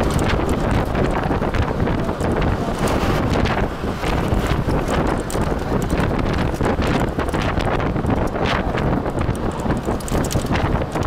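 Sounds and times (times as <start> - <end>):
low road rumble: 0.0 - 11.0
vehicle knocks and rattles: 0.0 - 11.0
wind buffeting microphone: 0.0 - 11.0.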